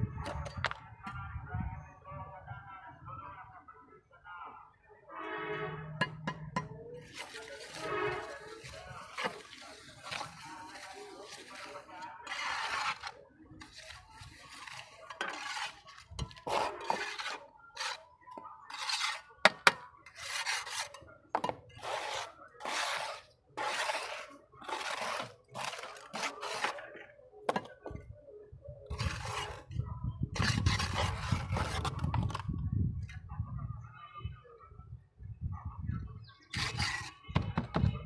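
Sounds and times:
trowel scraping wet cement: 5.9 - 27.7, 28.9 - 29.8, 30.4 - 32.5, 36.4 - 37.2.

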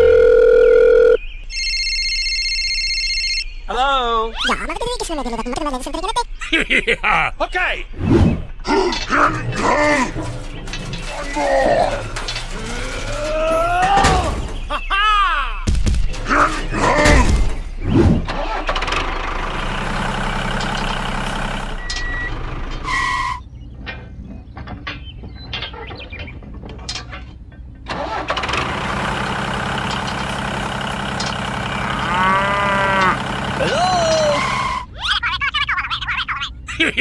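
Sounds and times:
engine humming: 0.0 - 36.9
cartoonish gliding voice sounds: 3.7 - 6.4.

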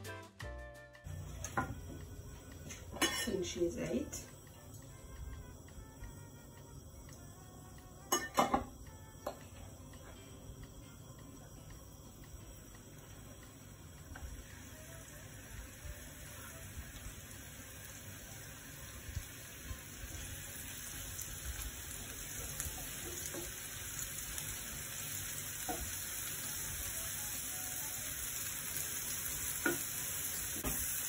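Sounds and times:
mushrooms sizzling in oil: 1.1 - 31.0.

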